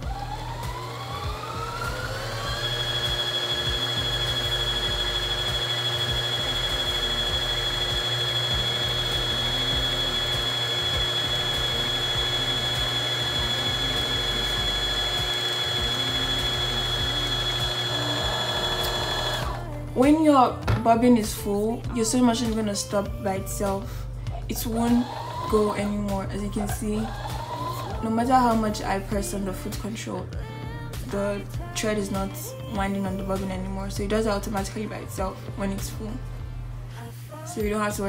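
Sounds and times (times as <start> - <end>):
sewing machine motor whining: 0.0 - 19.7, 24.6 - 28.0.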